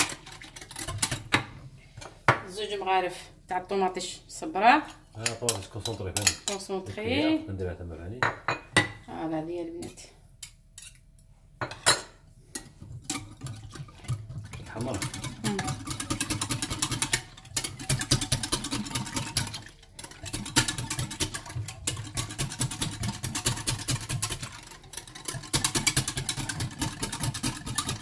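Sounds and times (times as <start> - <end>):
utensil beating batter in bowl: 0.0 - 1.7, 4.9 - 7.2, 12.5 - 28.0.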